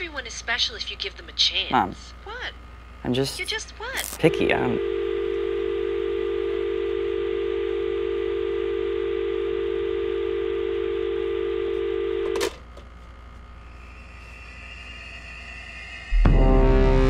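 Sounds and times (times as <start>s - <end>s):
telephone dial tone: 4.7s - 12.6s.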